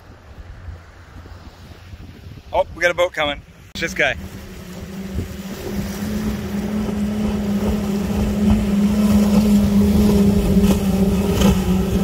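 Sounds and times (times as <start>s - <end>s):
outboard motors droning: 3.5s - 12.0s.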